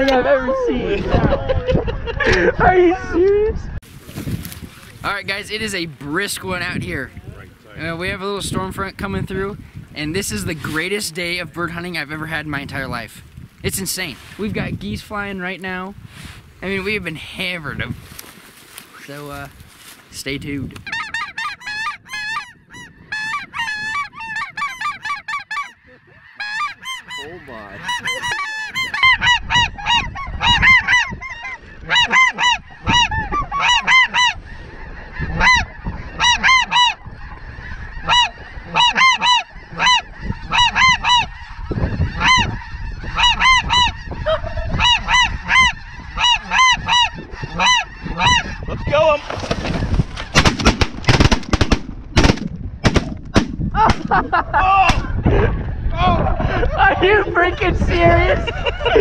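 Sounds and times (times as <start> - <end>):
wind rumbling on microphone: 0.0 - 59.0
geese honking: 20.8 - 51.3.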